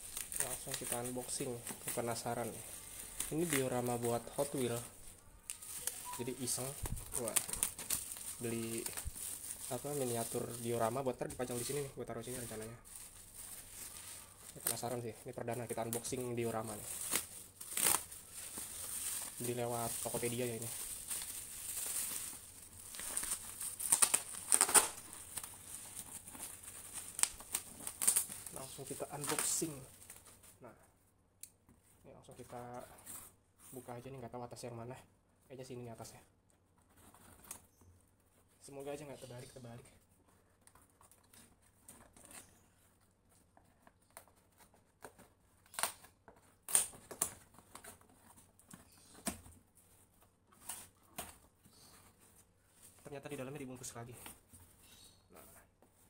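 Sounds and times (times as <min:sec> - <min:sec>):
bubble wrap crinkling and tearing: 0:00.0 - 0:30.6, 0:43.7 - 0:55.1.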